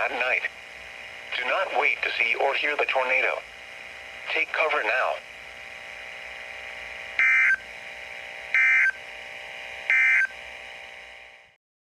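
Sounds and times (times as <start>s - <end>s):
broadcast hiss: 0.0s - 10.8s
digital data tone bursts: 7.2s - 7.7s, 8.5s - 9.0s, 9.9s - 10.4s.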